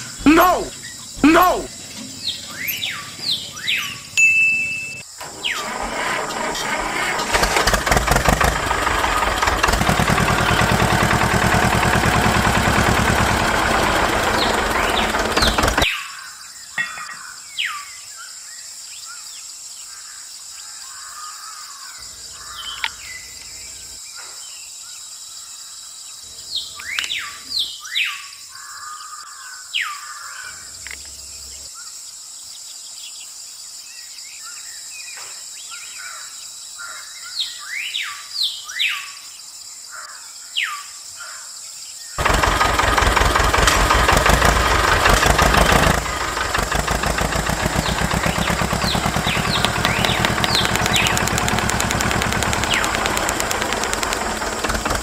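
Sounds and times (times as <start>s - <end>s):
birds chirping: 0.0s - 18.4s, 19.8s - 24.1s, 41.2s - 55.0s
engine running: 5.2s - 15.9s, 42.2s - 55.0s
high insect-like hiss: 28.3s - 37.5s.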